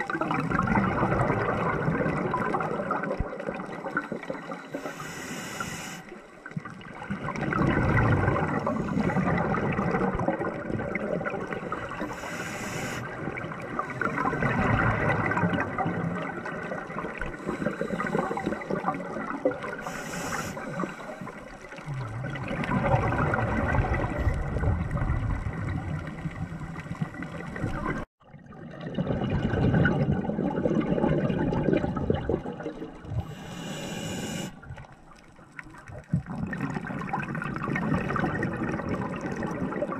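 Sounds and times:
exhaled bubbles gurgling: 0.0 - 39.9
regulator inhale hiss: 4.4 - 6.2, 8.8 - 9.4, 11.6 - 13.1, 17.3 - 18.9, 19.8 - 21.6, 33.2 - 34.6.

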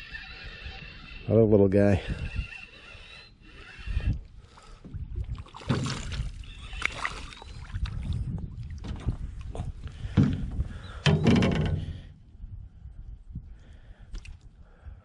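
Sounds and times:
knocks and rustling in canoe: 4.6 - 12.2
clunks against metal hull: 10.1 - 12.1.

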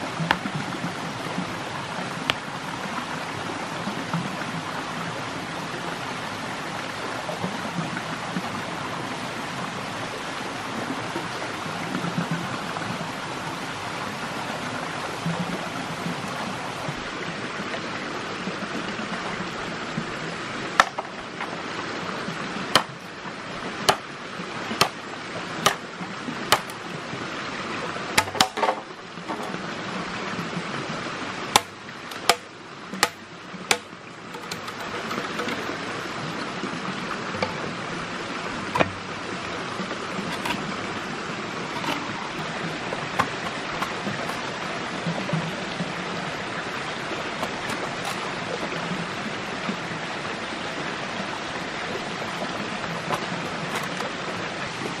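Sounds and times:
stream rushing: 0.0 - 55.0
sharp knocks: 20.8 - 21.1, 28.2 - 29.6, 31.6 - 35.7, 38.7 - 39.1, 43.0 - 44.4.

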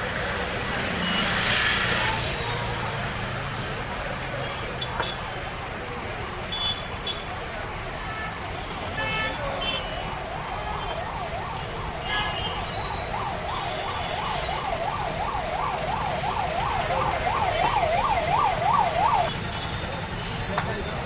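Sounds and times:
low traffic rumble: 0.0 - 21.0
emergency siren yelping: 10.0 - 20.2.

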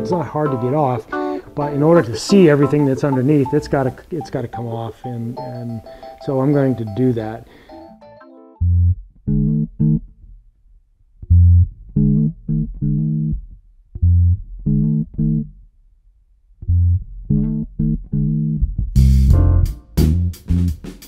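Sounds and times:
low riff theme music: 0.0 - 10.0, 17.3 - 21.0.

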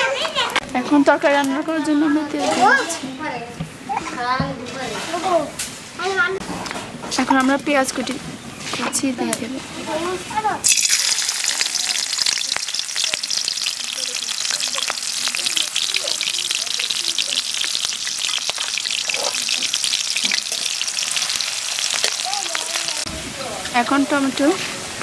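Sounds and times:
onions sizzling in hot oil: 10.6 - 25.0.

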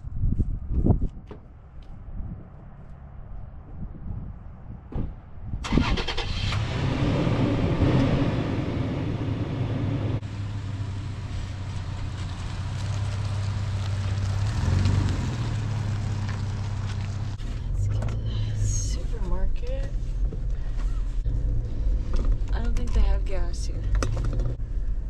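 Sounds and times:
engine cranking and idling: 5.6 - 25.0
truck pulling away: 5.7 - 18.8.

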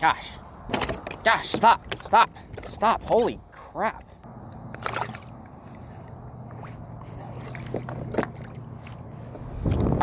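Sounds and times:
steady low hum: 4.2 - 10.0.

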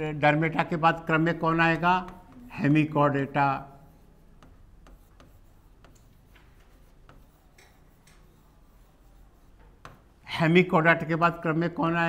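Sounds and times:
pen tapping on screen: 4.4 - 8.4, 9.6 - 10.1.

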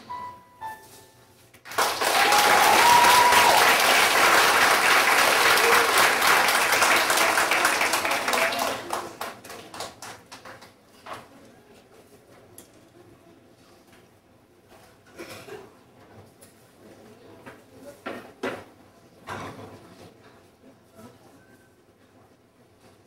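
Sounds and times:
children clapping and cheering: 1.6 - 10.7.

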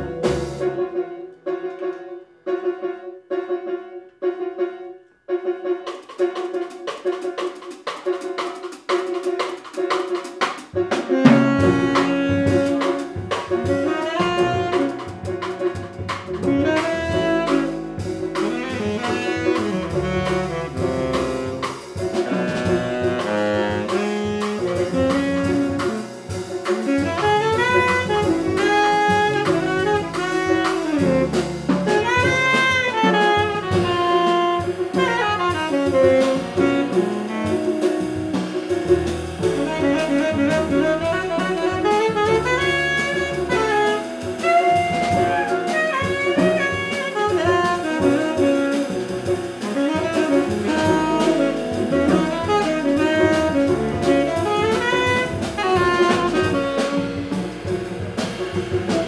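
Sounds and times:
drum kit with cymbals: 0.0 - 1.0, 5.8 - 59.0
upright bass: 0.0 - 1.0, 11.2 - 59.0
piano: 0.0 - 59.0
tenor saxophone melody: 11.1 - 15.6, 16.4 - 59.0.

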